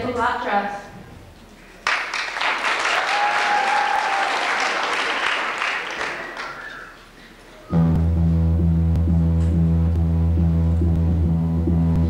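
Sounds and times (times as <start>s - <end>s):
audience clapping: 1.6s - 7.2s
music with heavy bass: 7.7s - 12.0s.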